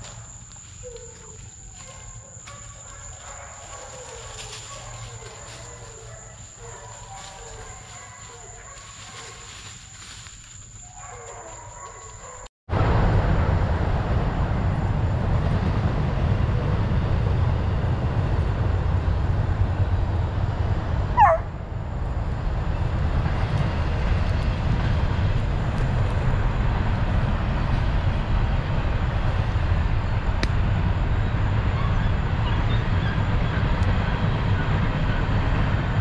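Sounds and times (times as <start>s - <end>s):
low microphone rumble: 12.7s - 36.0s
puppy yelp: 21.2s - 21.5s.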